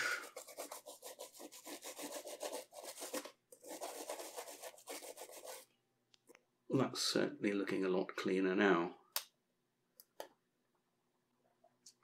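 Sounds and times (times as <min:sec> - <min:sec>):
toothbrush scrubbing circuit board: 0:00.2 - 0:05.7.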